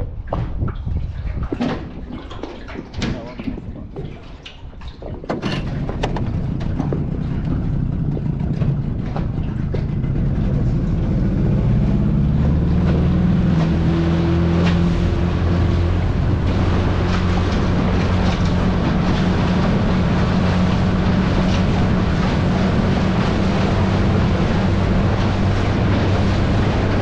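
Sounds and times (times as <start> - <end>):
sharp knocks: 5.2 - 10.2
small outboard motor running: 5.3 - 27.0.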